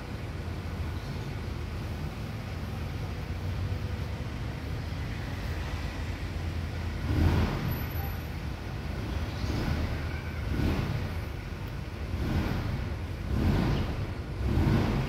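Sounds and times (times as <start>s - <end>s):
low outdoor background rumble: 0.0s - 15.0s.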